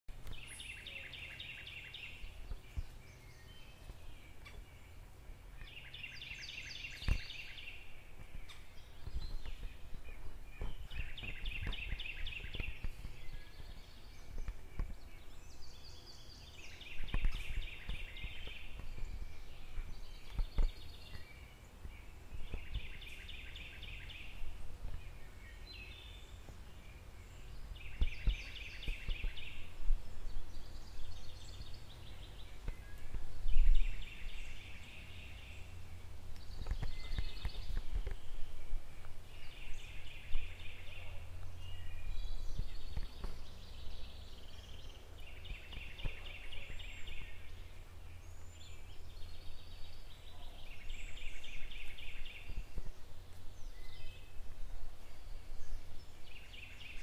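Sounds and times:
low steady rumble: 0.1 - 57.0
bird singing trilled phrase: 39.4 - 52.6.

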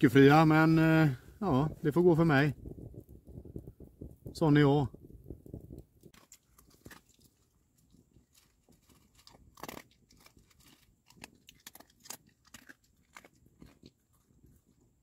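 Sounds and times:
dog crunching dry kibble: 6.1 - 14.9.

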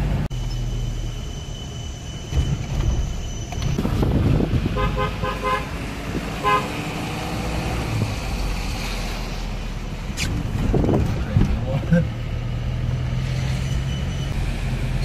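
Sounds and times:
vehicle driving rumble: 0.0 - 15.0
vehicle horn toots: 4.7 - 5.8, 6.4 - 6.8.

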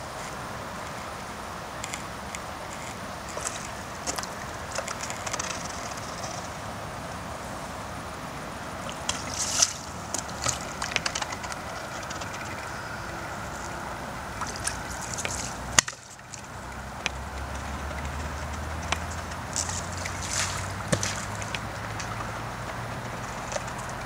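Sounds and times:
low steady hum: 0.0 - 24.0
steady rushing: 0.0 - 24.0
water sloshing and splashing: 8.6 - 24.0.

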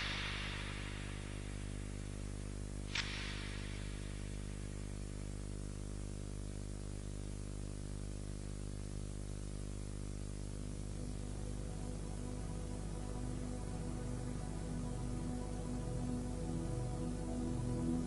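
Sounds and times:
electrical mains hum with hiss: 0.0 - 18.0
short click: 2.9 - 4.0.

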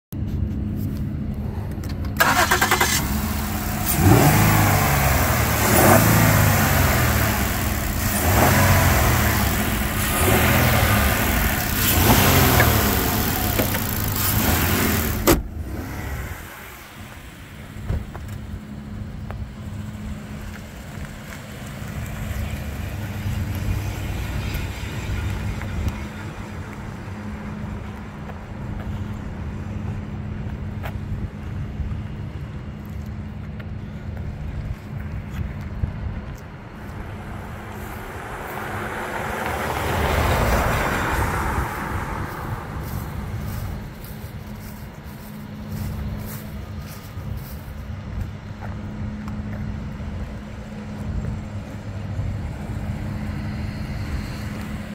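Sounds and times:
car engine revving: 2.2 - 17.9, 36.7 - 47.6.

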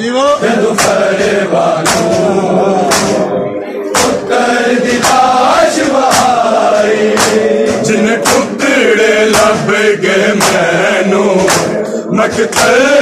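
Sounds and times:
crowd of men chanting: 0.2 - 13.0
hands slapping bare chests: 0.7 - 1.1, 1.8 - 2.3, 2.9 - 3.3, 4.0 - 4.3, 5.0 - 5.3, 5.9 - 8.6, 10.4 - 10.8, 11.4 - 11.8, 12.4 - 12.9.

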